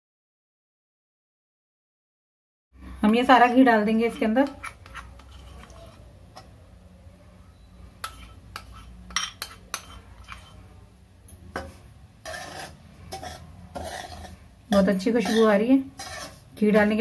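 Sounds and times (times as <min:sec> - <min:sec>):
metal spoon clinking on pan: 0:08.0 - 0:10.6, 0:11.3 - 0:17.0.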